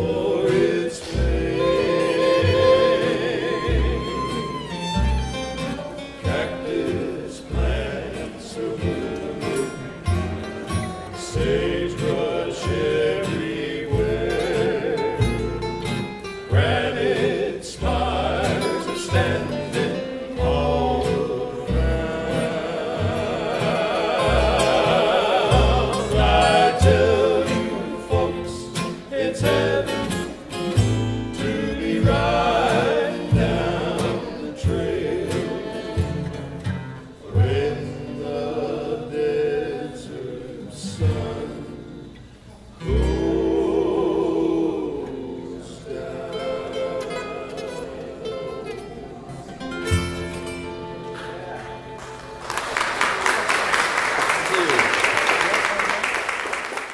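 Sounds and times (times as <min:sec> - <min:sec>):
plucked upright bass: 0:00.0 - 0:39.8, 0:42.8 - 0:52.2
strummed acoustic guitars: 0:00.0 - 0:54.8
voices singing in harmony: 0:00.0 - 0:54.8
fiddle: 0:01.2 - 0:06.3.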